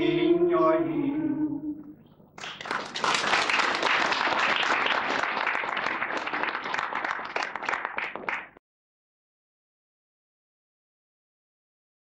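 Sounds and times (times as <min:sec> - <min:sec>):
audience applauding: 0:02.4 - 0:08.6.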